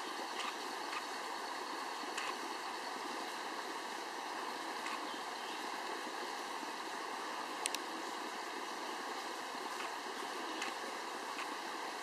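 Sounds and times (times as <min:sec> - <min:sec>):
creek running: 0:00.0 - 0:12.0
faint sharp ticks: 0:00.4 - 0:01.1, 0:02.1 - 0:02.5, 0:04.8 - 0:05.1, 0:07.6 - 0:07.9, 0:09.7 - 0:10.0, 0:10.6 - 0:11.6.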